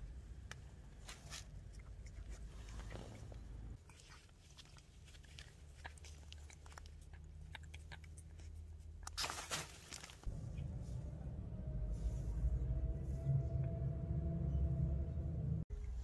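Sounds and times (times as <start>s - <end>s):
rustling: 0.9s - 11.2s
cat licking and smacking: 1.2s - 9.2s.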